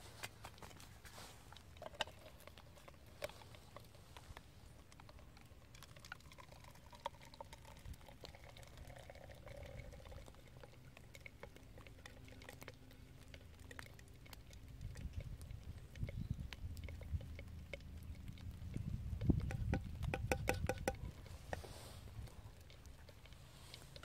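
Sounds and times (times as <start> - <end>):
small clicks and crackles: 0.0 - 24.0.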